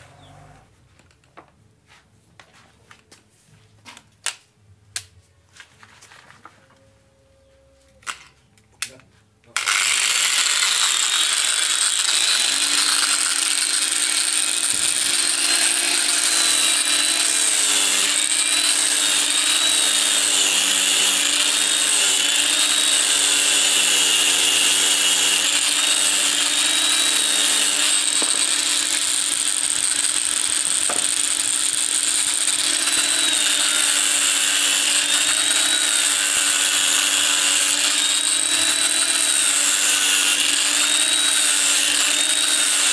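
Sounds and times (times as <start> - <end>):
angle grinder sanding steel: 9.6 - 42.9.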